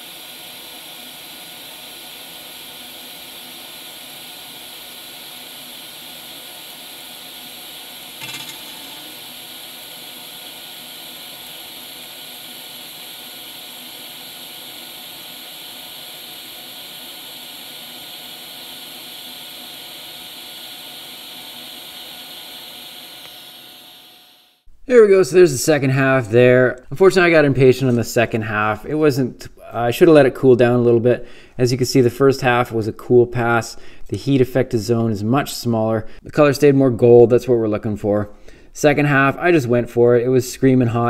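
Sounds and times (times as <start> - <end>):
welding arc hissing: 0.0 - 24.7.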